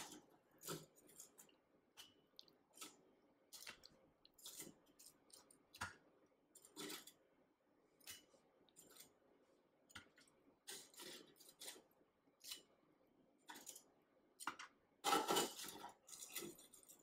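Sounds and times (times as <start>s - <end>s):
tongs scraping wire mesh basket: 0.0s - 7.2s, 10.6s - 12.7s, 15.1s - 17.0s.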